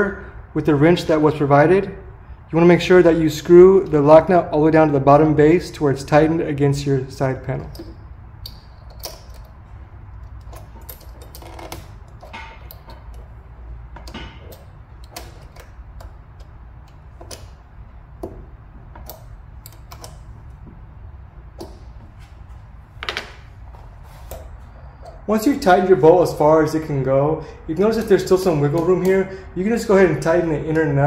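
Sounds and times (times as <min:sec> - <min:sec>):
wrench clicking on nut: 0:07.6 - 0:09.6, 0:19.0 - 0:20.2.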